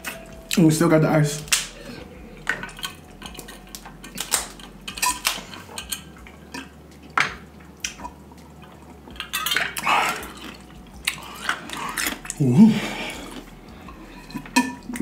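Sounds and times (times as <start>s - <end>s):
crab shells cracking: 1.4s - 1.8s, 2.4s - 12.4s.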